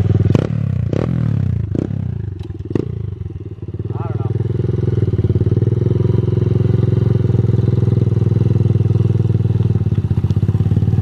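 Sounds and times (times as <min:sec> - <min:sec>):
small motorbike engine running: 0:00.0 - 0:11.0.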